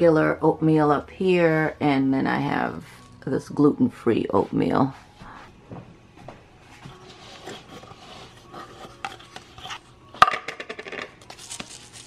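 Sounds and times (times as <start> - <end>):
cardboard rustling: 11.2 - 12.0.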